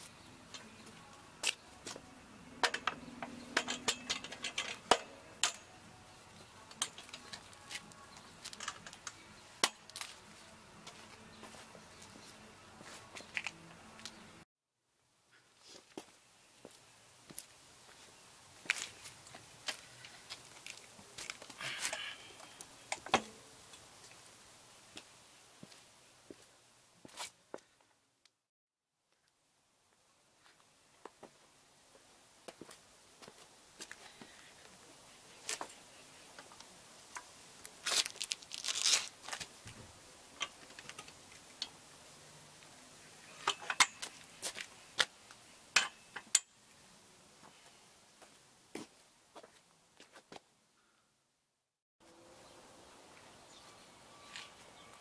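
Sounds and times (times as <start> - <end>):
metal scraping on concrete: 2.6 - 5.8
paddock stand clanking on casters: 2.6 - 5.8, 43.3 - 44.3.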